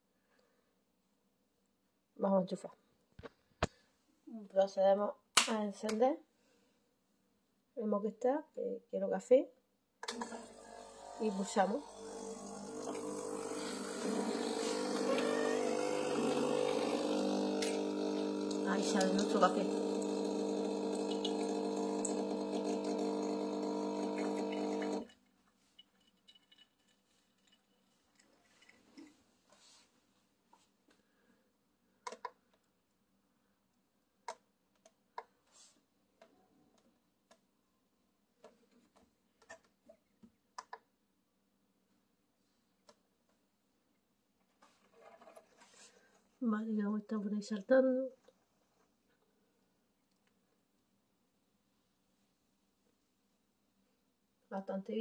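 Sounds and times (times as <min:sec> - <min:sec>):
espresso machine pump buzzing: 0:10.1 - 0:25.1.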